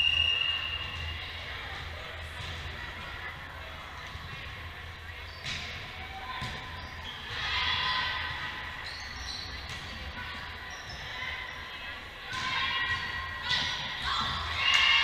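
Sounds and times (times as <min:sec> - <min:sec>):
sneakers squeaking on court: 0:05.2 - 0:07.5, 0:08.7 - 0:11.6.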